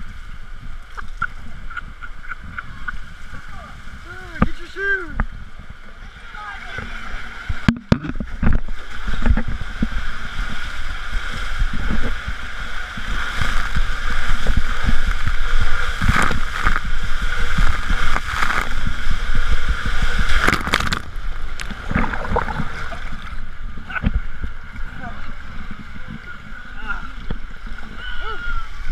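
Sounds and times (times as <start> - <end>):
rushing water in slide tube: 0.0 - 28.9
wind noise on microphone: 0.0 - 28.9
body sliding down water slide: 5.9 - 28.9
sharp knocks and splashes: 6.8 - 10.6, 13.0 - 23.4.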